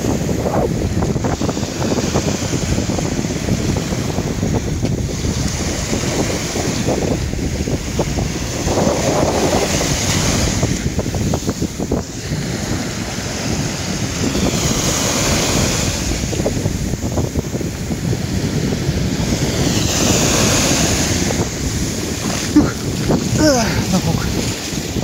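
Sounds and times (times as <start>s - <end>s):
small waves washing on sand: 0.0s - 25.0s
wind buffeting microphone: 0.0s - 25.0s.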